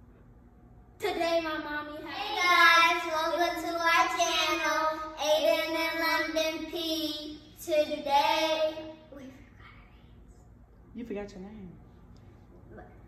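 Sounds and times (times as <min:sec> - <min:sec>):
child singing: 0:01.0 - 0:09.1.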